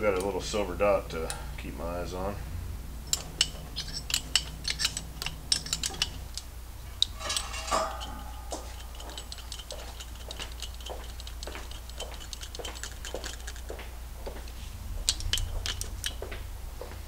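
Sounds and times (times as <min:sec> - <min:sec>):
hand tools clicking on metal: 0:00.0 - 0:00.5, 0:03.1 - 0:16.4
metal clatter with ringing: 0:03.1 - 0:06.3, 0:06.9 - 0:13.6.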